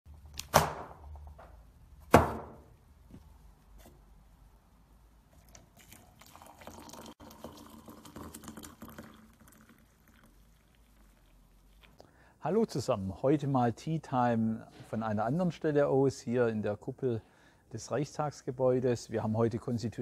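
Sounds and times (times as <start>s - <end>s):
liquid trickling: 5.3s - 12.0s.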